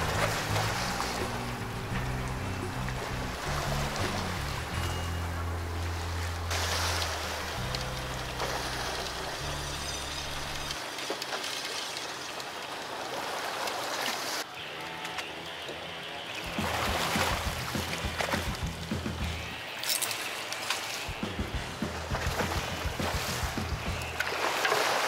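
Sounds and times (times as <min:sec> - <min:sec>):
low background music: 0:00.0 - 0:10.8, 0:14.6 - 0:25.0
seawater rushing and splashing: 0:00.0 - 0:25.0
knocks on boat: 0:21.2 - 0:24.2.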